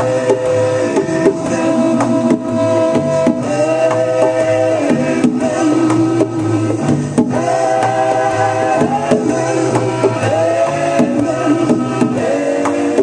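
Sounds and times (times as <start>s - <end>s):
song with bass and drum beat: 0.0s - 13.0s.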